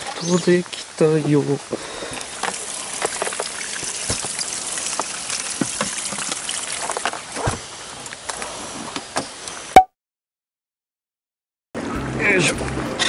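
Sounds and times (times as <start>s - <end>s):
light rain hiss: 0.0s - 9.7s.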